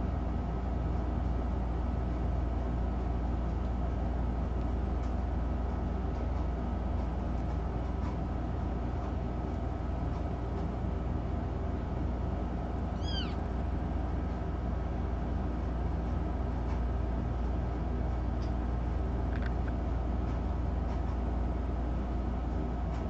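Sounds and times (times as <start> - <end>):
steady low hum: 0.0 - 23.0
kitten mewing: 12.9 - 13.5.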